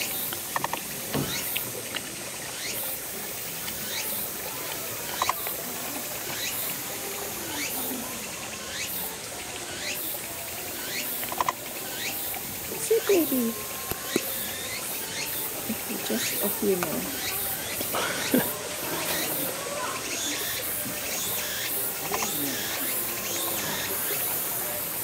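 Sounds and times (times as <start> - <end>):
mouth clicks: 11.2 - 11.6, 22.0 - 22.8.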